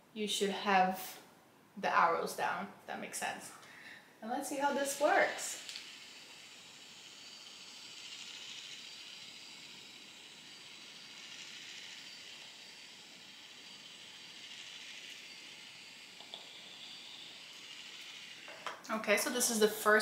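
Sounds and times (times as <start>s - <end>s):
hair straightener steam hissing: 4.4s - 19.5s.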